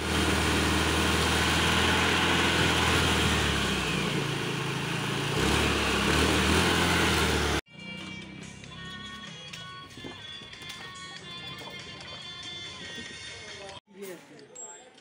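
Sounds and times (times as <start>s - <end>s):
scooter engine running: 0.0s - 9.3s.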